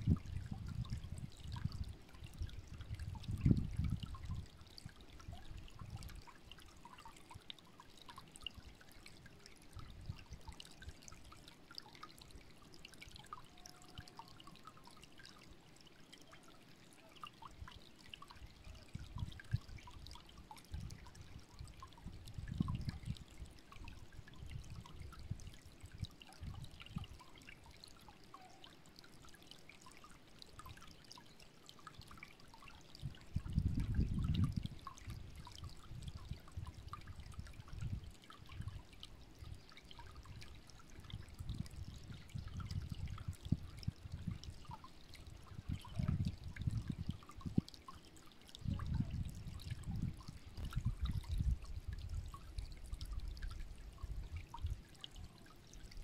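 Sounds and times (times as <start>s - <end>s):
wind rumble on microphone: 0.0s - 6.2s, 18.6s - 27.2s, 33.0s - 47.7s, 48.6s - 55.3s
stream babbling over stones: 0.0s - 56.0s.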